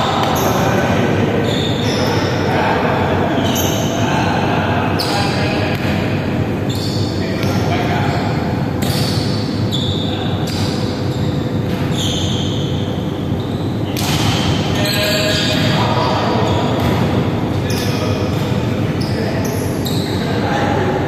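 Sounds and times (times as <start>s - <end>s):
shoe squeaks on wooden court: 0.1s - 2.4s, 3.3s - 4.1s, 6.6s - 7.6s, 8.8s - 20.3s.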